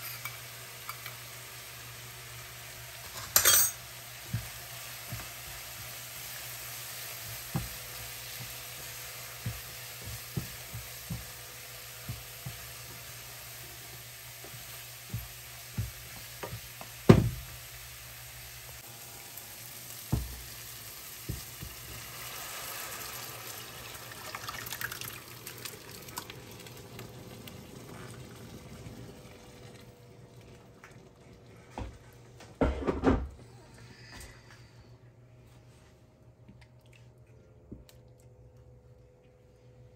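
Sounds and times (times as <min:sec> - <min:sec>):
food sizzling in a pan: 0:00.0 - 0:29.5.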